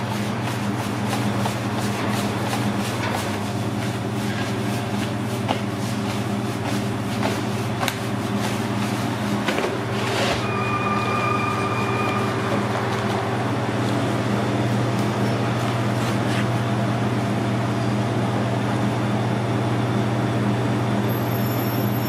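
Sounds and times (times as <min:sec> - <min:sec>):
kitchen machinery hum: 0:00.0 - 0:22.0
steady high tone: 0:10.0 - 0:15.6.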